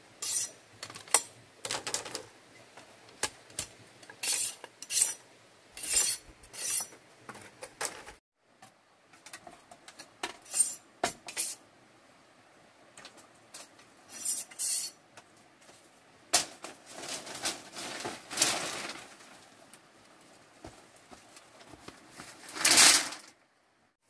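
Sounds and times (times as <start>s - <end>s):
bamboo strips clattering: 16.3s - 19.8s, 21.3s - 23.4s
bamboo rustling scrape: 16.6s - 19.6s, 21.5s - 23.3s.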